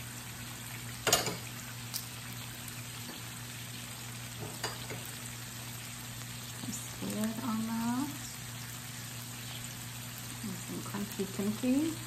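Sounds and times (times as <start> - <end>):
meat sizzling on grill plate: 0.0 - 12.0.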